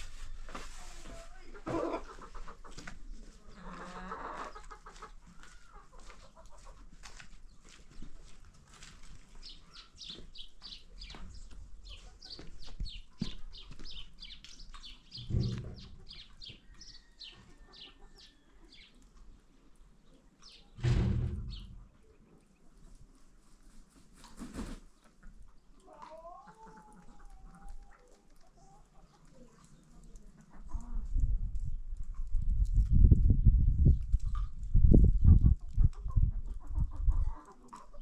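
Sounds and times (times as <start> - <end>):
chickens clucking: 0.0 - 33.0, 33.8 - 38.0
low rumbles: 20.8 - 21.9.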